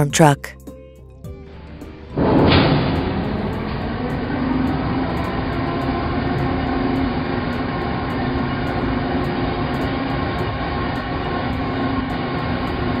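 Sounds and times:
low hum: 1.3 - 13.0
heavy vehicle rumbling: 1.4 - 13.0.

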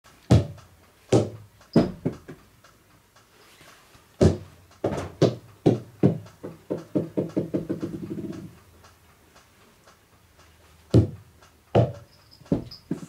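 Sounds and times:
rubber ball bouncing on wooden floor: 0.3 - 2.4, 4.2 - 8.4, 11.0 - 11.2, 11.8 - 13.0.

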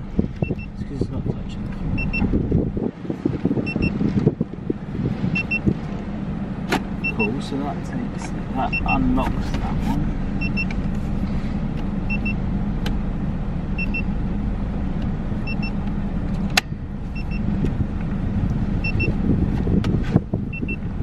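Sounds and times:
steady low hum: 0.0 - 21.0
double electronic beep: 0.4 - 0.8, 2.0 - 2.3, 3.6 - 4.0, 5.4 - 5.7, 7.0 - 7.3, 8.6 - 9.0, 10.4 - 10.7, 12.1 - 12.4, 13.8 - 14.1, 18.8 - 19.2, 20.5 - 20.8.

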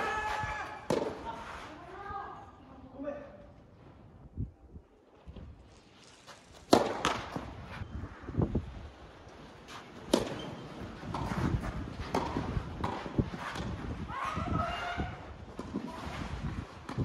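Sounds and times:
tennis racket hitting ball: 0.6 - 1.3, 6.6 - 7.5, 9.8 - 14.0
shoes scuffing on sandy court: 5.3 - 14.4.

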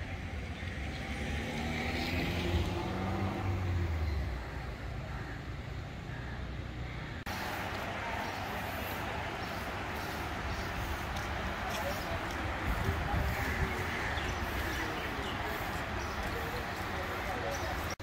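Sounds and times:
traffic hiss: 7.2 - 18.0.

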